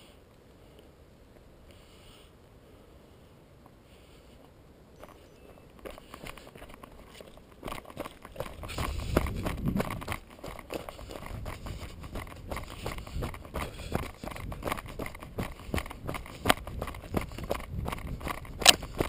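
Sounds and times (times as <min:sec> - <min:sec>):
tyres crunching over stones: 0:05.0 - 0:19.0
bike rattling clicks: 0:05.8 - 0:19.0.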